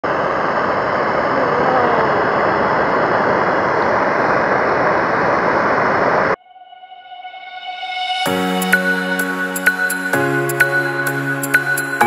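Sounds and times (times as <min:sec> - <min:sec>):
gas blow torch hissing: 0:00.1 - 0:06.4.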